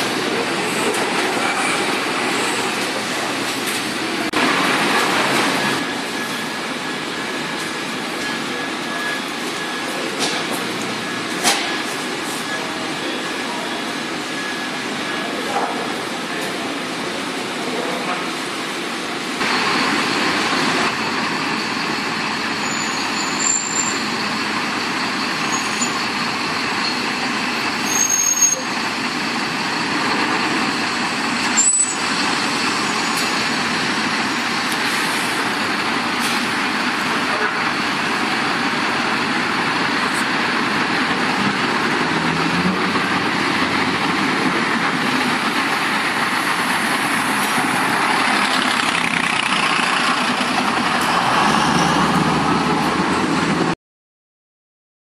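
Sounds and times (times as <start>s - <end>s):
diesel bus engines: 0.0s - 53.8s.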